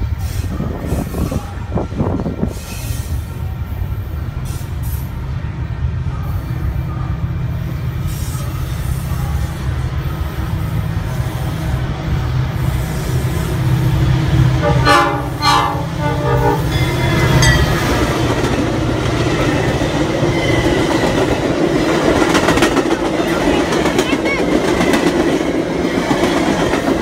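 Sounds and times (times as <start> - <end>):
freight train rumbling: 0.0 - 27.0
diesel train horn blasts: 14.5 - 18.1
train wheels clickety-clack: 16.8 - 27.0.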